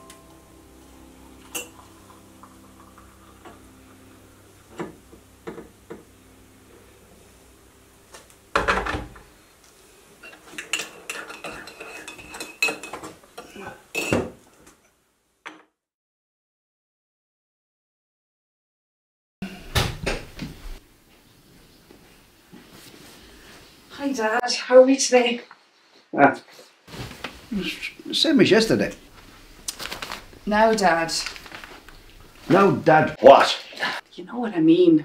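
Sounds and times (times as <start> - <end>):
dishes and cutlery clattering: 10.2 - 14.4.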